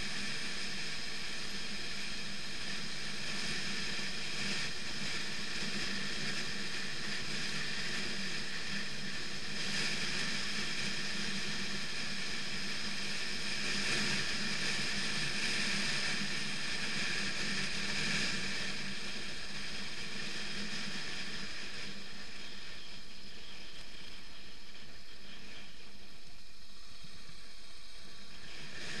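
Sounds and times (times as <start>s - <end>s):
wind and tyre noise on gravel: 0.0s - 29.0s.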